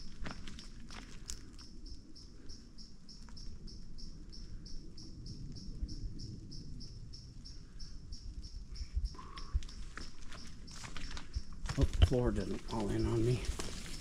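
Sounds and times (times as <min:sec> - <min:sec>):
cricket chirping: 0:00.0 - 0:14.0.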